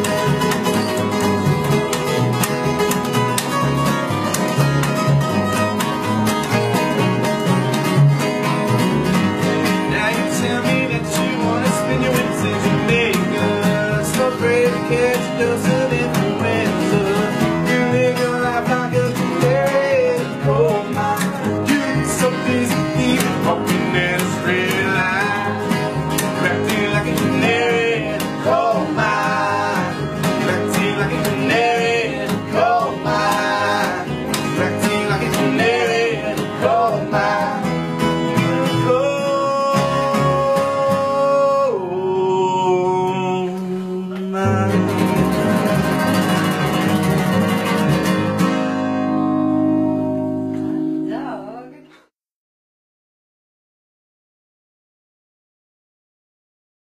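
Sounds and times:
plucked upright bass: 0:00.0 - 0:51.0
acoustic guitars strummed and picked: 0:00.0 - 0:52.1
people singing: 0:09.9 - 0:46.8.

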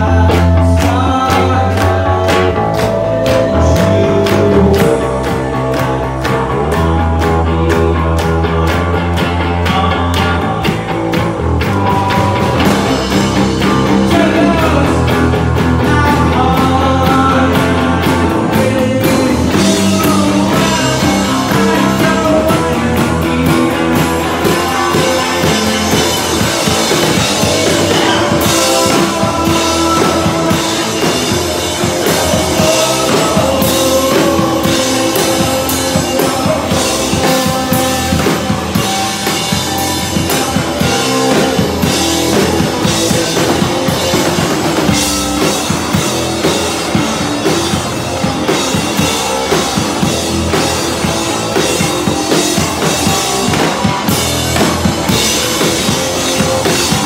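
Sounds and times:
drum kit: 0:00.0 - 0:57.0
electric guitar: 0:00.0 - 0:57.0
person singing lead vocal: 0:00.0 - 0:57.0.

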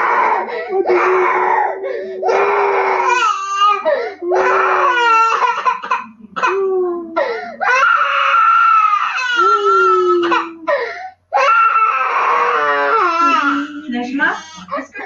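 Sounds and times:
small child crying: 0:00.0 - 0:14.8.

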